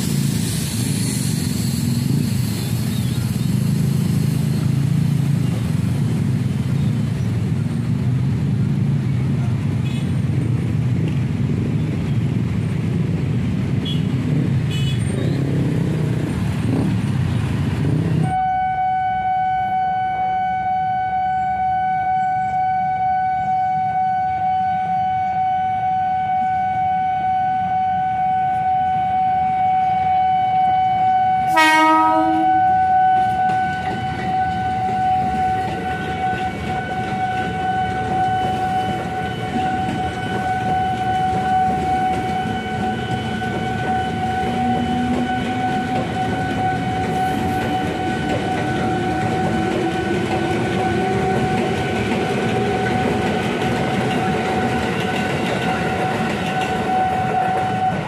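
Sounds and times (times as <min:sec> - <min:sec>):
low traffic rumble: 0:00.0 - 0:58.0
train horn blast: 0:09.8 - 0:10.2, 0:18.2 - 0:55.1, 0:55.7 - 0:58.0
level crossing warning tone: 0:18.2 - 0:58.0.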